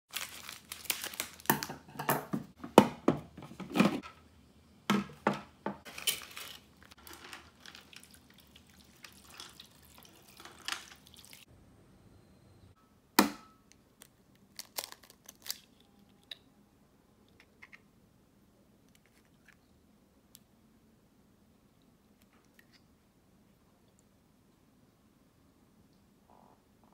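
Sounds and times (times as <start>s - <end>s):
plastic bag crinkling: 0.1s - 1.7s, 5.9s - 11.5s, 14.5s - 15.9s
egg cracking: 6.2s - 11.5s.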